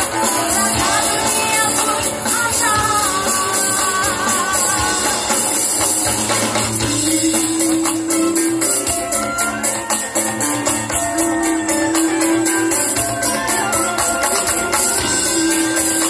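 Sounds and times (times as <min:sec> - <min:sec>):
woman singing: 0:00.0 - 0:06.0, 0:06.8 - 0:16.0
live band music: 0:00.0 - 0:16.0
shaken percussion rhythm: 0:00.0 - 0:16.0.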